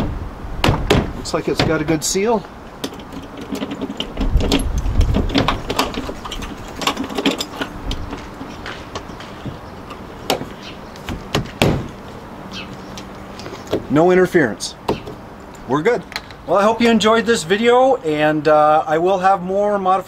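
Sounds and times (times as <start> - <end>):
roof latch clicks and knocks: 0.0 - 2.0, 2.8 - 12.0.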